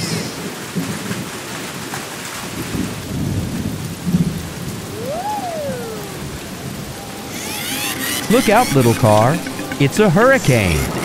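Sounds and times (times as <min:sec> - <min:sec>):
steady rain: 0:00.0 - 0:11.0
thunder rumbling: 0:02.4 - 0:07.4.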